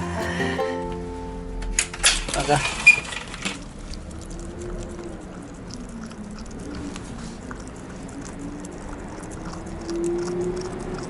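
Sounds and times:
dog chewing and licking: 2.8s - 11.0s.

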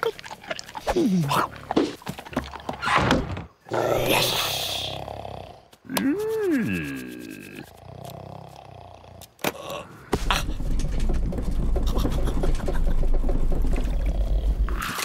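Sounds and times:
caravan rolling with rattling rumble: 10.4s - 14.6s.

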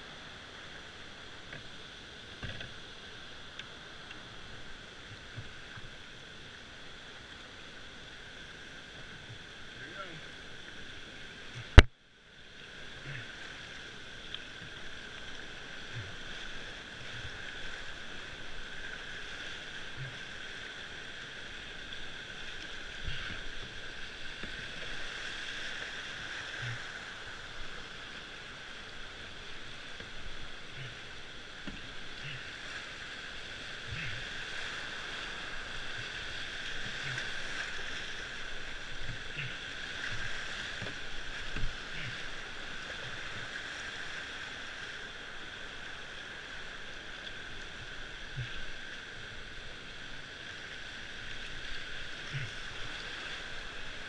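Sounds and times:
whitewater rapids rushing: 9.6s - 54.0s
paddle splashes: 12.6s - 54.0s.

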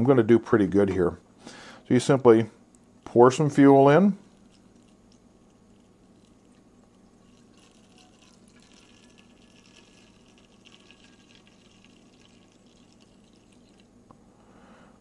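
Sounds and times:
liquid trickling into tank: 4.2s - 14.0s.

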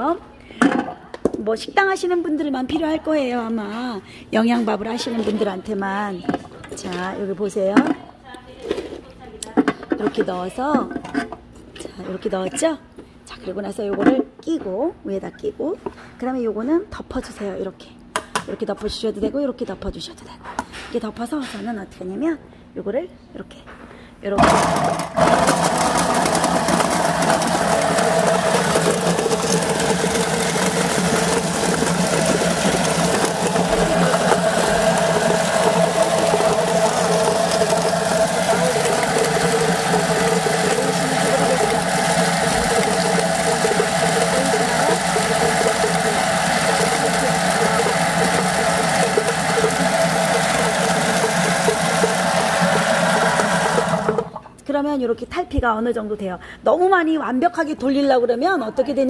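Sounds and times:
chestnuts tumbling in a drum: 24.4s - 54.4s
motor hum: 24.5s - 54.5s.

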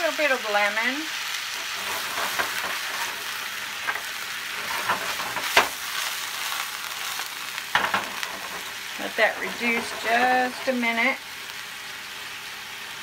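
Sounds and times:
vegetables sizzling in a skillet: 0.0s - 13.0s
pan knocking: 7.8s - 8.7s.

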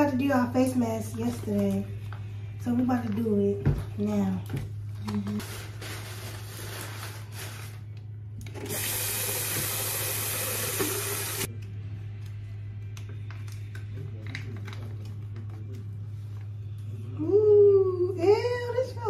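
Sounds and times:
water running from a tap: 8.6s - 11.5s.

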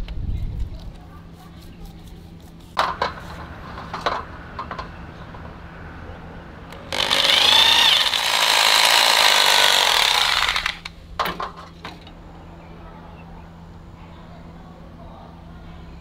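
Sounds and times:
hammer drill boring into masonry: 6.9s - 10.9s.

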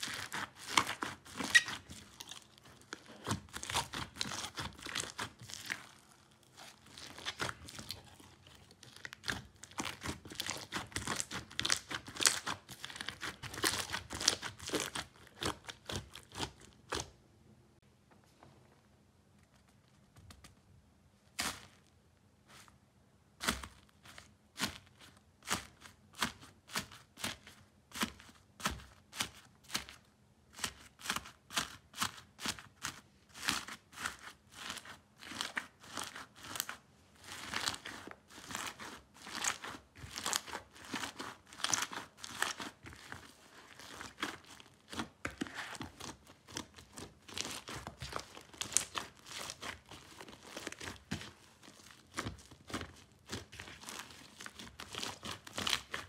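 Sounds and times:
slime beads crackling: 37.3s - 56.0s.

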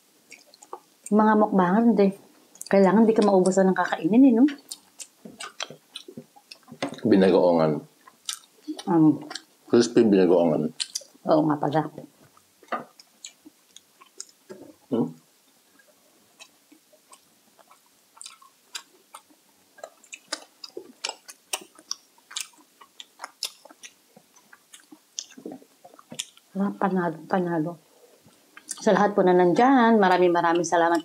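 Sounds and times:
wet mouth clicks: 0.3s - 0.9s, 4.5s - 7.1s, 8.0s - 9.5s, 10.8s - 11.2s, 12.3s - 14.8s, 15.8s - 26.6s, 28.6s - 28.9s
crunchy chewing: 0.3s - 1.1s, 4.5s - 7.4s, 8.0s - 11.2s, 12.2s - 14.9s, 15.5s - 26.6s, 27.9s - 28.9s.

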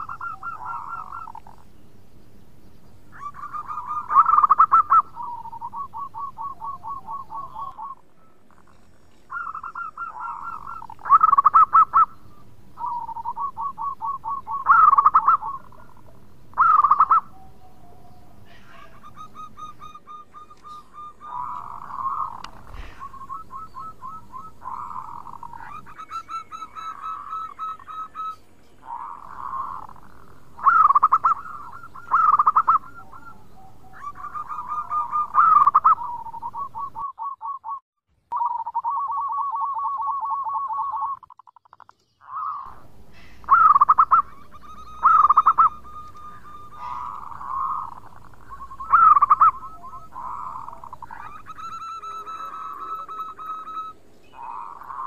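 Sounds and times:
dove cooing: 0.0s - 1.7s, 3.1s - 37.8s, 38.4s - 41.2s, 42.2s - 55.0s.

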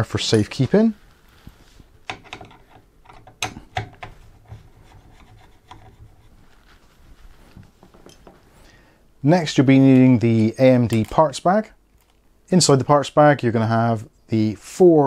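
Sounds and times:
screwdriver scraping screw heads: 2.1s - 6.3s.

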